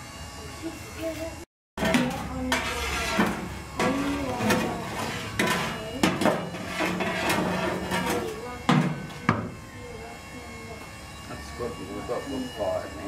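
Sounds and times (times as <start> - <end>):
shovel scraping through charcoal: 1.8 - 8.4
coals clinking: 1.8 - 9.2.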